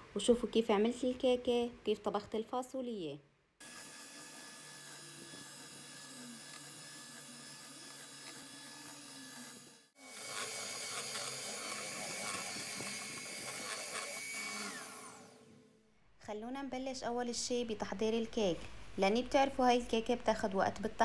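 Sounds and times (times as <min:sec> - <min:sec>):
electric hand mixer whirring: 0:03.6 - 0:15.7
beaters whisking in metal bowl: 0:04.8 - 0:15.0.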